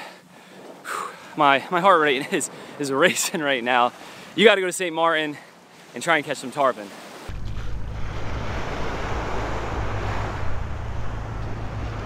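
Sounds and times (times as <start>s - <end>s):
small waves on sandy beach: 0.0s - 12.0s
wind buffeting microphone: 7.3s - 12.0s.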